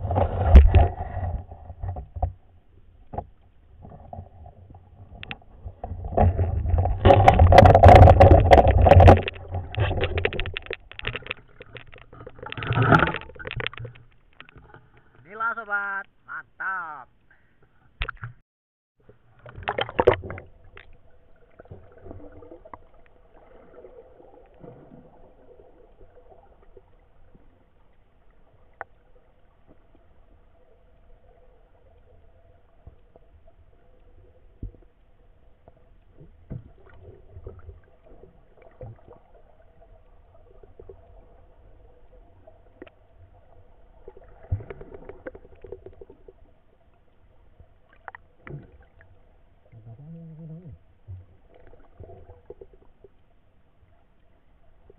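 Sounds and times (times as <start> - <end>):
muffled underwater river rumble: 0.0 - 15.2, 19.0 - 54.9
water splashing: 0.0 - 16.0, 19.0 - 54.9
small clicks and knocks: 6.8 - 15.2
faint steady hum: 19.1 - 54.9.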